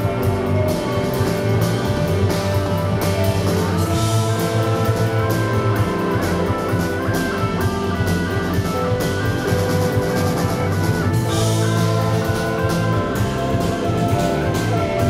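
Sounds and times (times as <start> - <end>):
rock band playing live: 0.0 - 15.0.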